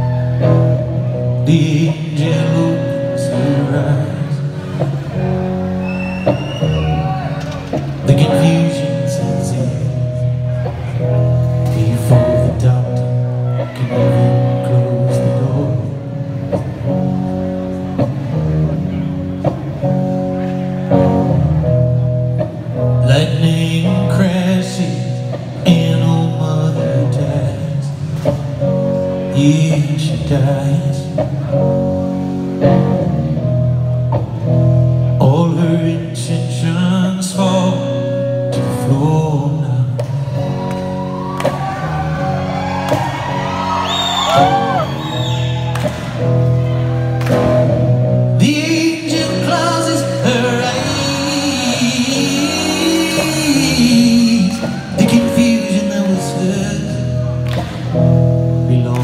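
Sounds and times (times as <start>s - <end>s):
man singing: 0.0s - 4.9s, 8.0s - 10.6s, 11.6s - 16.4s, 23.0s - 28.2s, 29.2s - 31.6s, 35.2s - 40.7s, 48.3s - 57.4s, 58.6s - 59.0s
bass: 0.0s - 59.0s
drums: 0.0s - 59.0s
electric guitar chords: 0.0s - 59.0s.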